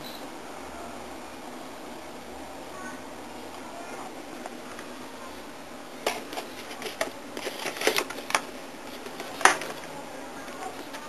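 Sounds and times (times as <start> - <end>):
boxes of glasses clicking: 6.0 - 9.9.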